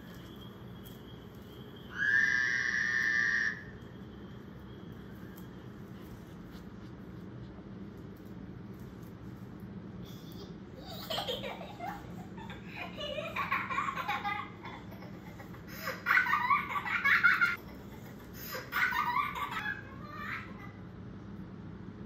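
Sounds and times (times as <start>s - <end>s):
high-pitched giggling: 10.1s - 20.8s.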